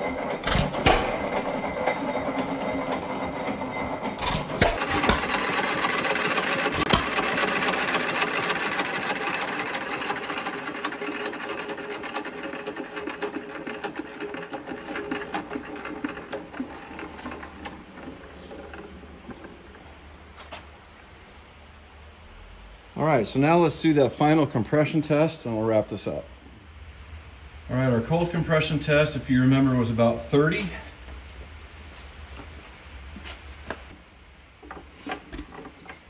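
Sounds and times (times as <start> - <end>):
hit-and-miss engine clattering: 0.0 - 20.1.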